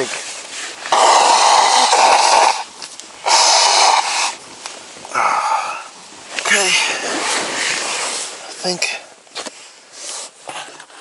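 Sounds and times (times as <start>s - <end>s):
man blowing his nose: 0.9s - 2.6s.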